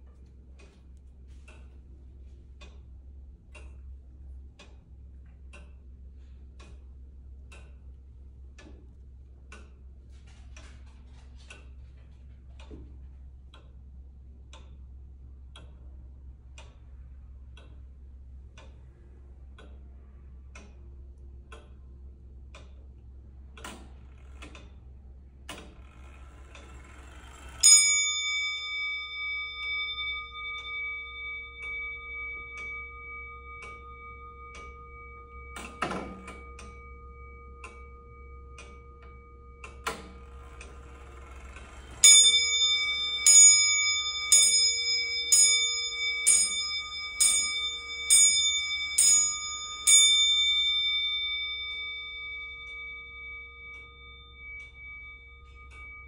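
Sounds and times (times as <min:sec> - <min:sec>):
clock movement clicks: 0:00.0 - 0:14.9, 0:22.4 - 0:56.0
clock ticking: 0:00.0 - 0:56.0
clock bell ringing: 0:26.4 - 0:56.0.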